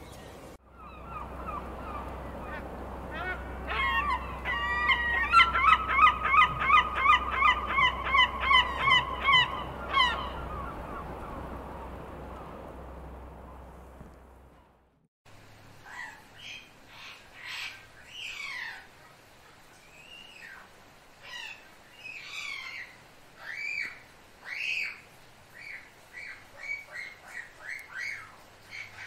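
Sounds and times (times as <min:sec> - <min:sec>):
gulls calling: 0:00.0 - 0:14.9
low rumble: 0:09.0 - 0:15.0.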